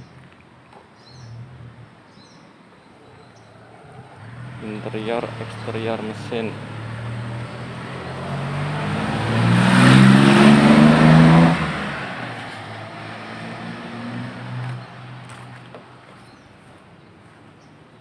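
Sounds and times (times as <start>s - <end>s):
vehicle engine revving: 3.6s - 15.7s.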